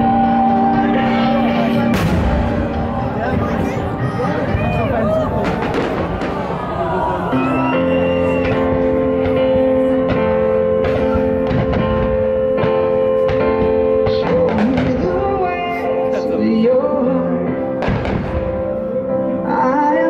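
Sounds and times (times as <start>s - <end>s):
music with held notes and beat: 7.6s - 20.0s
person singing: 13.0s - 17.8s, 18.6s - 20.0s.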